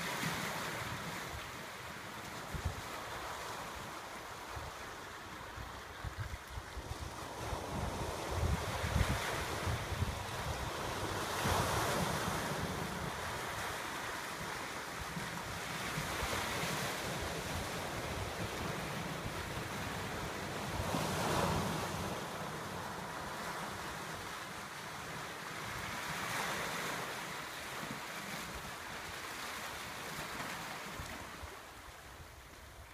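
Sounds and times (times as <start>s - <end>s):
ocean surf breaking over rocks: 0.0s - 31.9s
wind buffeting microphone: 6.0s - 13.7s.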